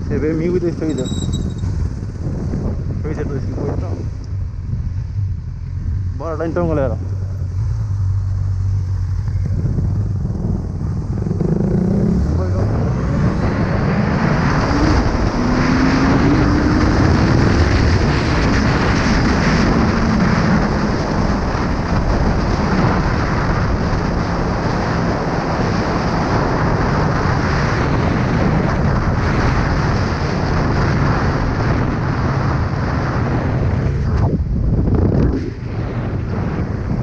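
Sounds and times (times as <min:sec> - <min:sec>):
wind rushing over microphone: 0:00.0 - 0:37.0
motorcycle engine accelerating: 0:00.2 - 0:26.8.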